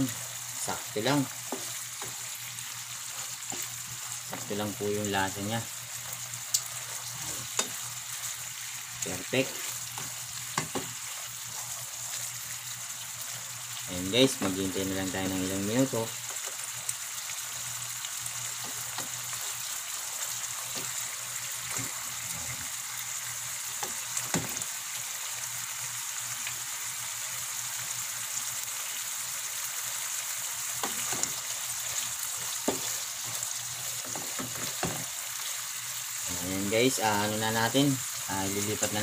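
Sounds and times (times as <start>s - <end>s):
food sizzling in a frying pan: 0.0s - 39.0s.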